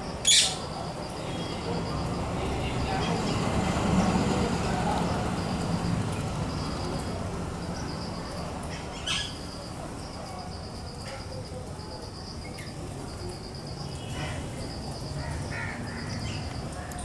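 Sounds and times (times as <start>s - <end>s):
distant traffic rumble: 0.0s - 17.0s
parakeet harsh squawk: 0.2s - 0.6s.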